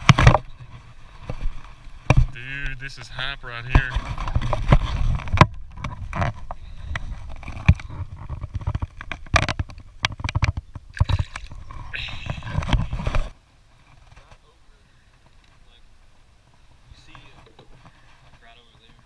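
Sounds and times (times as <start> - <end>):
camera handling knocks and rubbing: 0.0 - 2.4, 3.6 - 14.3.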